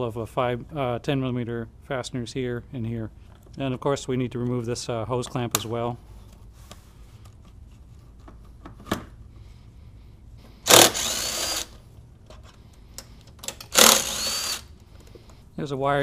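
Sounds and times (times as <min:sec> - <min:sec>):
cordless drill motor whine: 0:10.7 - 0:11.8, 0:13.7 - 0:14.7.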